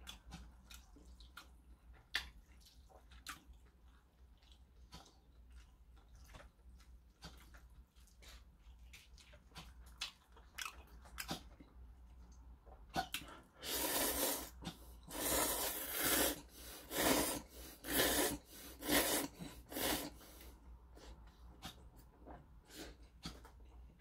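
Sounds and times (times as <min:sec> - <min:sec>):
soft chewing clicks: 0:00.0 - 0:13.5, 0:20.4 - 0:24.0
noodles being slurped: 0:12.9 - 0:20.6.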